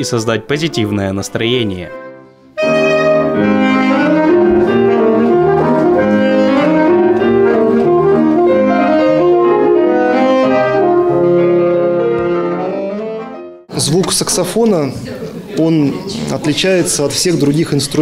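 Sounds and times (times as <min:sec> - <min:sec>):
alto saxophone jazz melody: 0:01.9 - 0:13.7.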